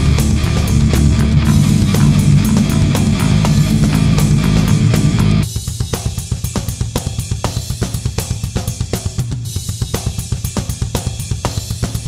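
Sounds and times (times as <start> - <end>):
cymbals and hi-hat: 0.0 - 12.0
kick drum: 0.3 - 5.4
snare drum: 1.4 - 12.0.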